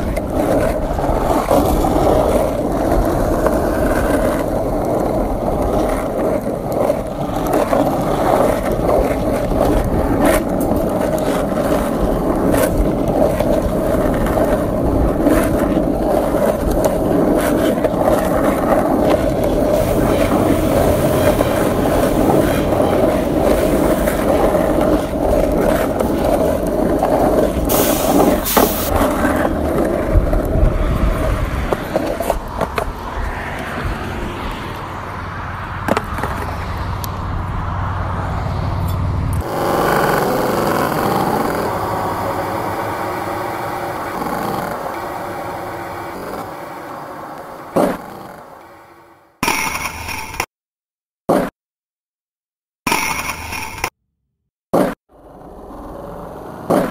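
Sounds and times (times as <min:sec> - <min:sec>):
road and tyre noise in car: 0:00.0 - 0:49.5
brief hisses: 0:27.7 - 0:28.9
scattered clicks: 0:52.9 - 0:53.9.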